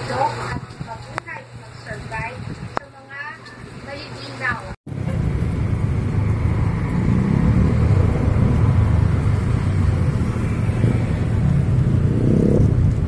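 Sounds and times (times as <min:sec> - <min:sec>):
cars passing: 0:04.9 - 0:13.0.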